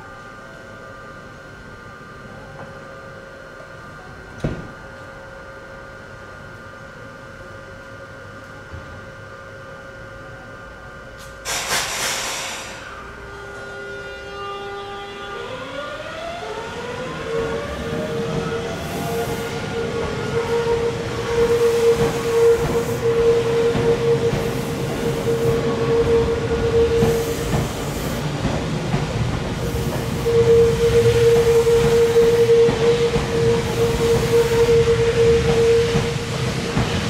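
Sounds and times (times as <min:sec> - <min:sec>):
train running noise: 0:10.9 - 0:37.0
electric train motor whine: 0:12.6 - 0:37.0.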